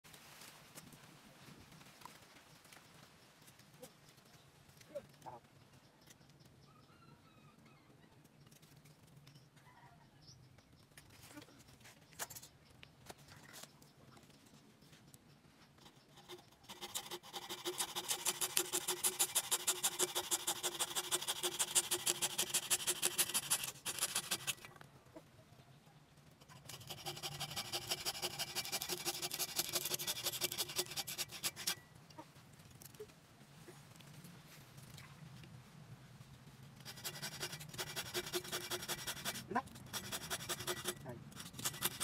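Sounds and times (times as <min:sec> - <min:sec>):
hacksaw cutting branch: 0:16.2 - 0:24.6, 0:26.4 - 0:31.8, 0:36.8 - 0:42.0.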